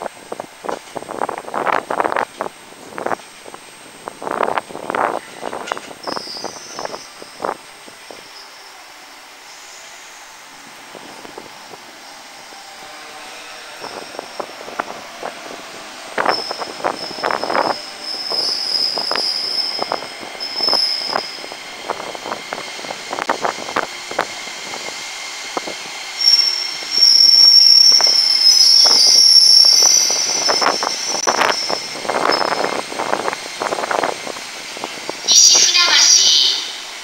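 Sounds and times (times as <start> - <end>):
high-pitched brake squeal: 5.7 - 8.8, 12.8 - 14.9, 16.2 - 21.5, 26.2 - 32.8.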